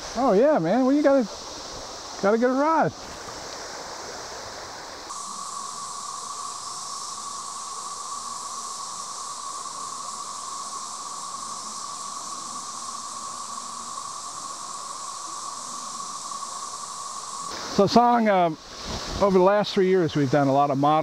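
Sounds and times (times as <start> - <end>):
underwater stream hiss: 0.0 - 21.0
mid-pitched hum: 4.8 - 18.6.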